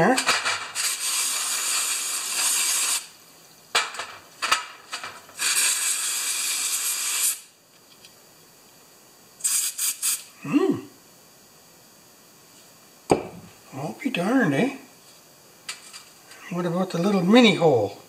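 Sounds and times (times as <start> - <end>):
aerosol spray hissing: 0.8 - 3.1, 5.4 - 7.5, 9.4 - 10.4.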